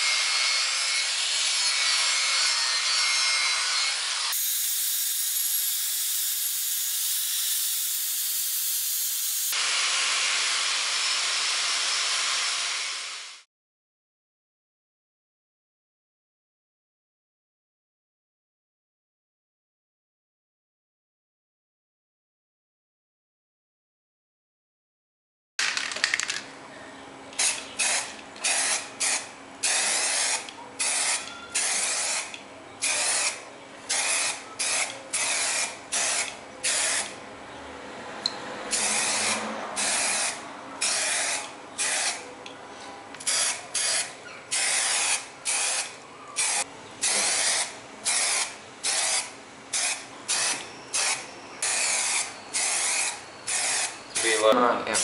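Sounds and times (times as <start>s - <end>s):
spray can hissing: 27.4s - 37.2s, 38.7s - 42.2s, 43.3s - 54.4s.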